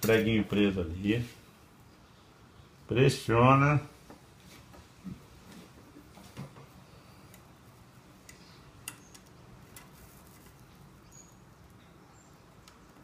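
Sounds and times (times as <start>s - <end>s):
faint sharp clicks of metal: 7.2s - 7.5s, 8.2s - 10.7s.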